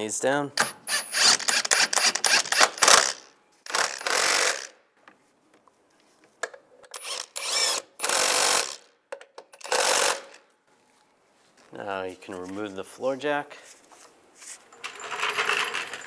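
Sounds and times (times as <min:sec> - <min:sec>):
impact wrench bursts: 0:00.6 - 0:04.8, 0:06.9 - 0:08.9, 0:09.6 - 0:10.4.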